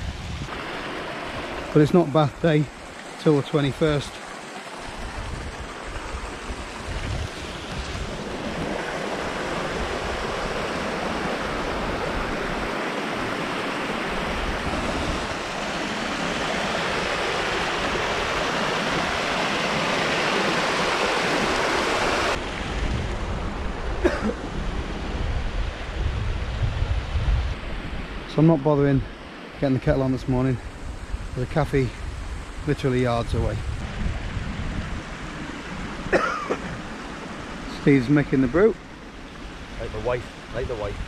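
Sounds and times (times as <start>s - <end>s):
wind rumble on microphone: 0.0s - 1.7s, 4.8s - 29.2s, 29.8s - 36.1s, 36.7s - 41.0s
stream rushing over rocks: 0.0s - 25.9s.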